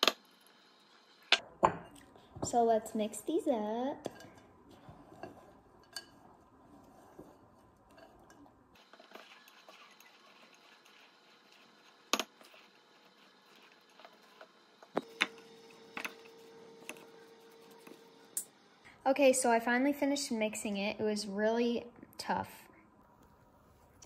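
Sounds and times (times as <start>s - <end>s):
spatula scraping dough: 4.1s - 18.3s.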